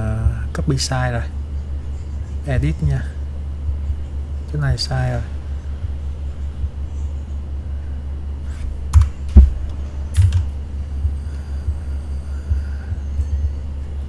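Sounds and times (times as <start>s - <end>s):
steady low hum: 0.0s - 14.0s
computer mouse and keyboard clicks: 10.1s - 10.5s.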